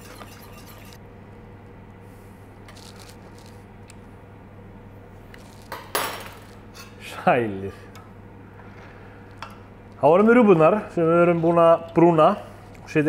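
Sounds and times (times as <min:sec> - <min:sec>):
whisk scraping in pot: 0:00.0 - 0:01.0
steady electrical hum: 0:00.0 - 0:13.0.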